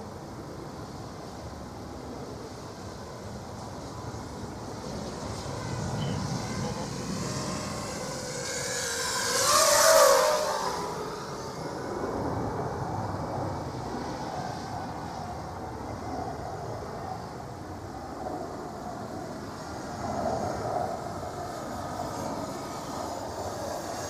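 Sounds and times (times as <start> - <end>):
drone motors whining: 3.6 - 13.8, 19.4 - 24.0.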